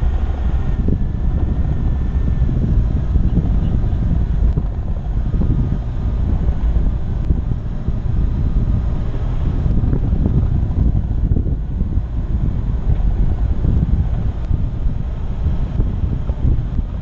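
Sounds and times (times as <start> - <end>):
engine and tyres rumbling: 0.0 - 17.0
wind buffeting microphone: 0.0 - 17.0.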